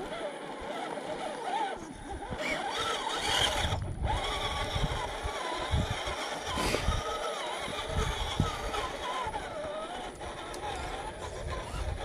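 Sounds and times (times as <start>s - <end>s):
toy truck motor whining: 0.0s - 12.0s
low rumbles and thumps: 3.2s - 12.0s.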